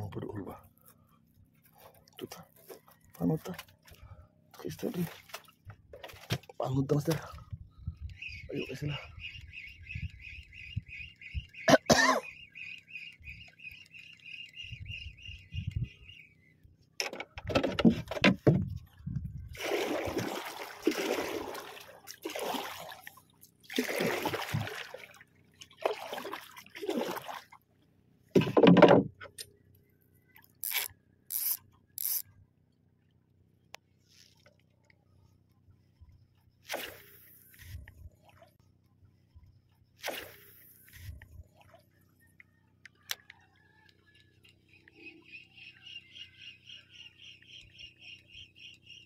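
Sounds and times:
bird chirping: 0:07.7 - 0:16.7, 0:44.6 - 0:49.0
fishing reel rustling and scraping: 0:30.6 - 0:32.3.

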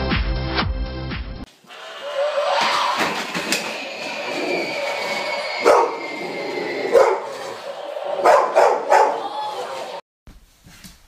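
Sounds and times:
dog barking: 0:05.6 - 0:06.0, 0:06.9 - 0:07.5, 0:08.2 - 0:09.3.

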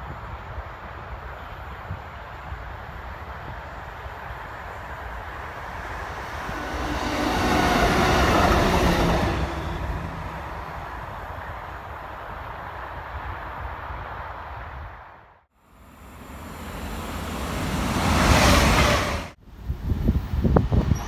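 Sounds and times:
track machine passing on rails: 0:00.1 - 0:15.0, 0:15.8 - 0:21.0.

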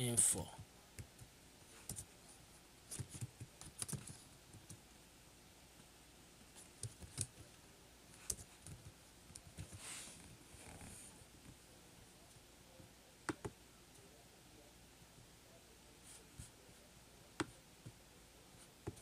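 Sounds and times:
keystrokes on computer keyboard: 0:02.9 - 0:04.8, 0:06.7 - 0:07.4, 0:08.2 - 0:09.7.

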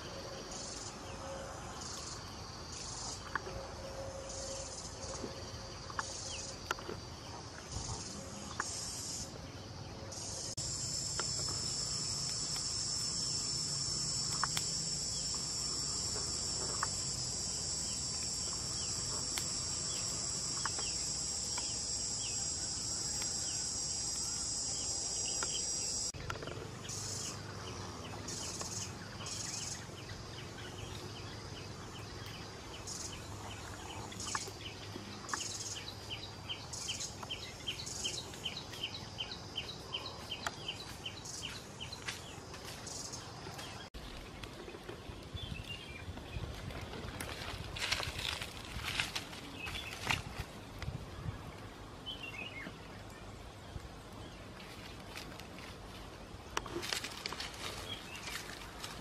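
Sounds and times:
insects droning high-pitched: 0:00.0 - 0:43.9
high pulsing insect calls: 0:00.0 - 0:59.0.

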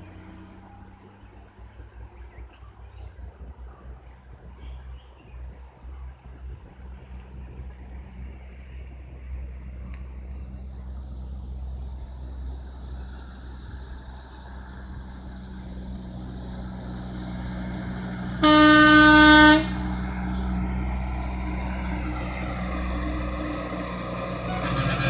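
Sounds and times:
truck engine running: 0:08.9 - 0:25.0
truck horn blast: 0:18.4 - 0:19.9, 0:24.2 - 0:25.0.

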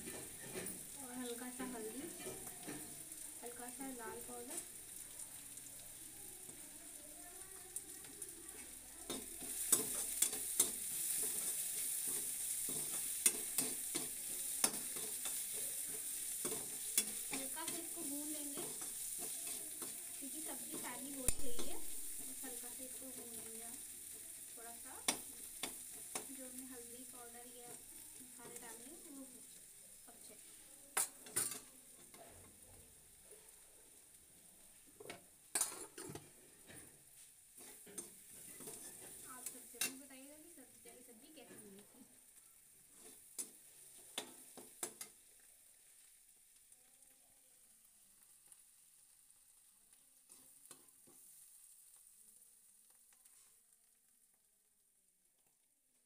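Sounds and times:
spatula scraping a pan: 0:00.0 - 0:03.9, 0:08.0 - 0:29.6, 0:35.0 - 0:40.1, 0:42.9 - 0:45.3, 0:50.3 - 0:51.5
vegetables sizzling in oil: 0:00.0 - 0:56.0.

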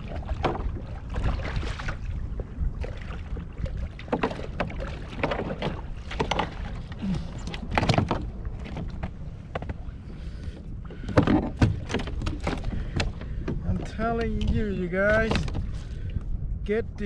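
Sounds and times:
waves slapping kayak hull: 0:00.0 - 0:17.0
wind rumble on microphone: 0:00.0 - 0:17.0
fishing rod knocks and rustles: 0:04.0 - 0:09.8, 0:10.9 - 0:16.3.

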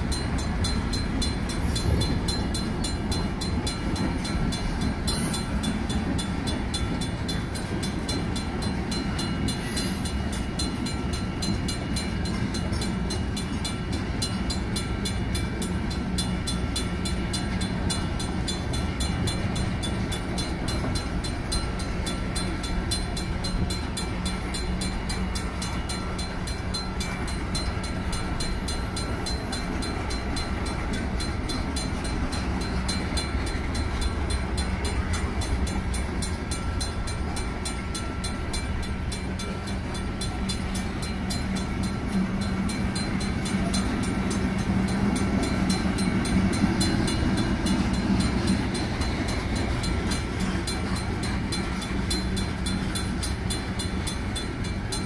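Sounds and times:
crossing bell ringing: 0:00.0 - 0:55.0
train wheels rumbling and clacking: 0:00.0 - 0:55.0.

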